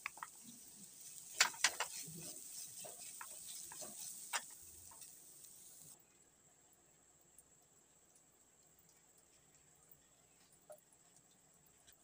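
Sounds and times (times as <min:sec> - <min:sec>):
vegetables sizzling in oil: 0:00.0 - 0:06.0
spatula scraping a frying pan: 0:00.2 - 0:05.8.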